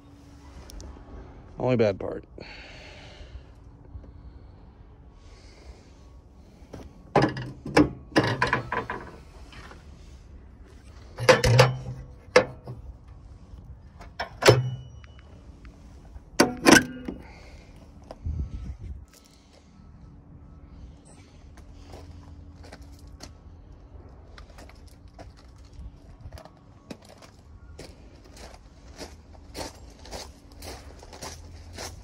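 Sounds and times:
metal tools clanking: 0:07.1 - 0:09.3, 0:10.9 - 0:12.9, 0:14.0 - 0:15.3, 0:16.4 - 0:17.5.

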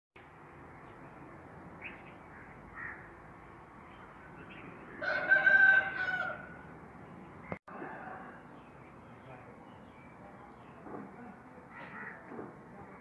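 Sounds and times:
faint outdoor background noise: 0:00.2 - 0:13.0
rooster crowing: 0:05.0 - 0:06.6, 0:07.7 - 0:08.5.

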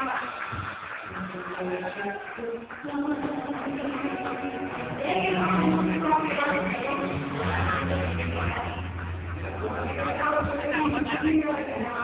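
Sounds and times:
live band playing: 0:02.9 - 0:11.9.

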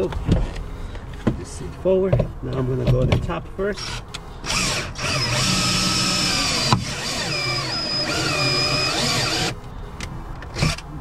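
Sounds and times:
cordless drill motor whine: 0:03.8 - 0:09.6.

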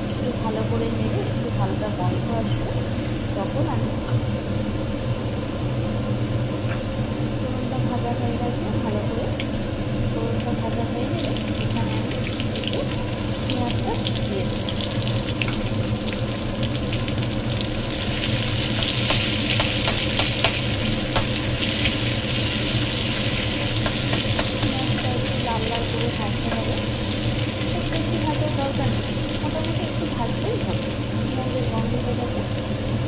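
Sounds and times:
onions sizzling: 0:11.0 - 0:33.0
spices crackling in hot oil: 0:11.0 - 0:33.0
metal spatula clicking on pan: 0:19.1 - 0:21.3, 0:23.8 - 0:24.8.

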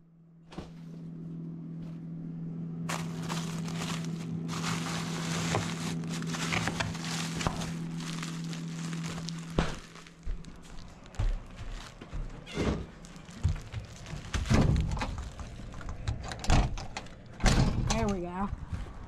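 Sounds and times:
steady low hum: 0:00.0 - 0:19.0
plastic bag crinkling: 0:02.9 - 0:15.9.

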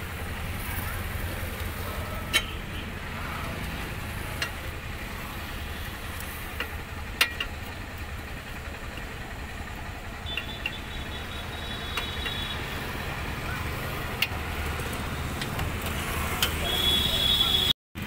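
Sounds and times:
spanner clicking on metal: 0:06.2 - 0:07.7, 0:11.8 - 0:12.5.

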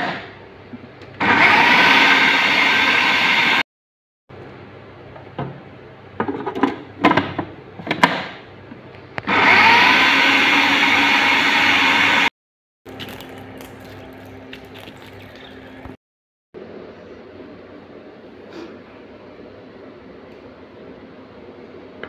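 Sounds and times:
food processor running: 0:01.2 - 0:03.6, 0:09.2 - 0:12.3.

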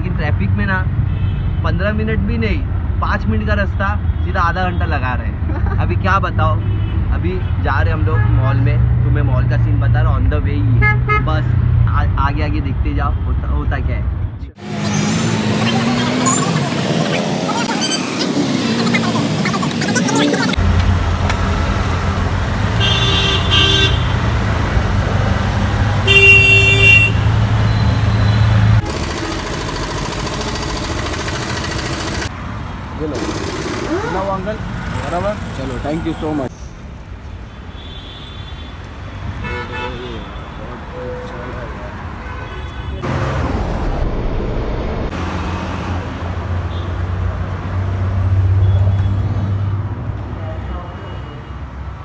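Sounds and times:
street traffic: 0:00.0 - 0:52.0
auto-rickshaw engine drone: 0:14.6 - 0:36.5
horn toots: 0:22.8 - 0:24.2, 0:26.0 - 0:28.6.

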